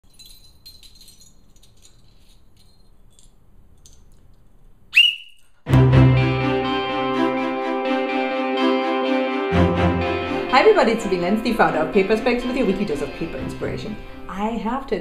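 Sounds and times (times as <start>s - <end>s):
small metal bells tinkling: 0.0s - 4.1s
metal whistle blast: 4.9s - 5.5s
loud music: 5.7s - 14.2s.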